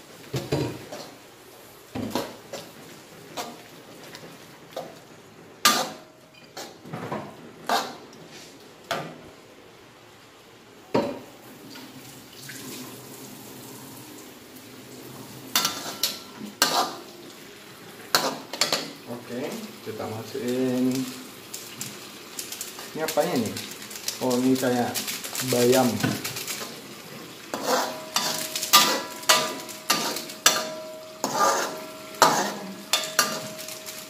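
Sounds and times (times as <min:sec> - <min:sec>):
metal spatula clanking on wok: 0:27.5 - 0:34.0.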